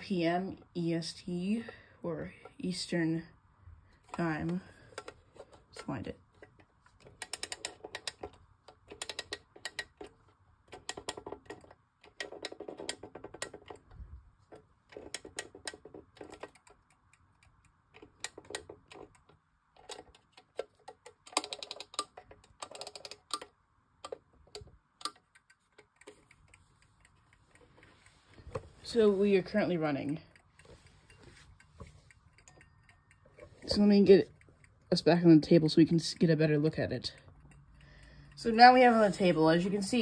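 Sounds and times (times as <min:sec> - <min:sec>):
clock clockwork clicking: 0:04.0 - 0:40.0.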